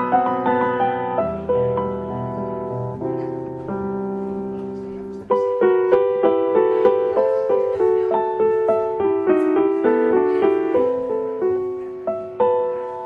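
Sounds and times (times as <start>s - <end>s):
solo piano music: 0.0s - 13.0s.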